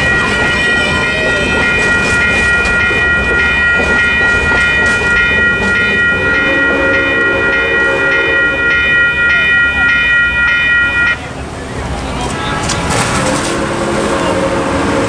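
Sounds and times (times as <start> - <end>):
train wheels clicking over rail joints: 0.0 - 6.5
railroad crossing bell ringing: 0.0 - 11.8.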